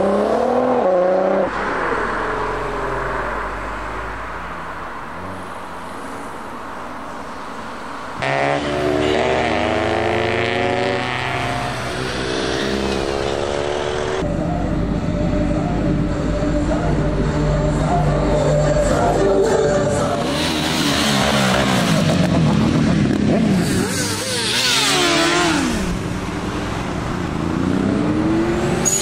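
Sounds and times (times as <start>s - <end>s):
road noise: 0.0s - 29.0s
car engine revving: 8.2s - 29.0s.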